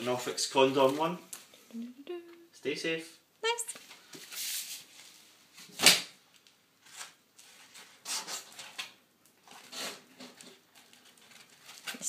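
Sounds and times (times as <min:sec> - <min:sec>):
wrapping and cardboard rustling: 0:00.0 - 0:01.2, 0:06.8 - 0:12.0.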